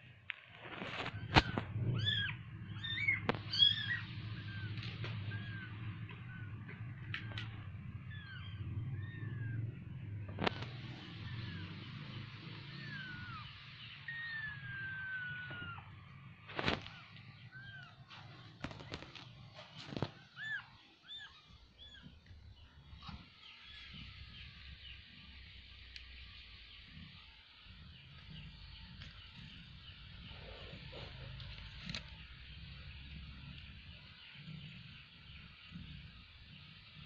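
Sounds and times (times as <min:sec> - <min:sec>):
kittens mewing: 0:01.0 - 0:09.8, 0:10.4 - 0:16.0.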